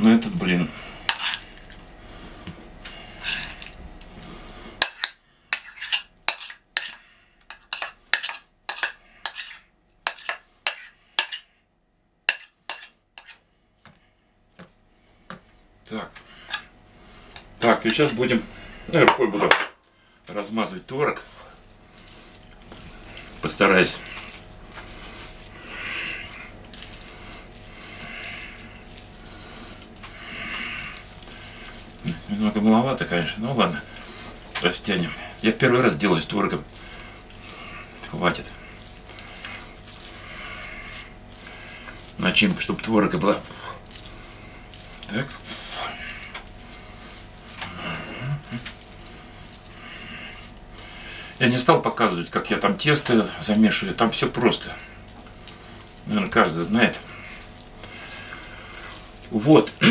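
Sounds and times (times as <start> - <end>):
scraping a ceramic plate: 1.1 - 1.5, 3.1 - 3.7, 4.7 - 11.5, 12.3 - 13.4
hand smearing cheese on dough: 20.6 - 59.9.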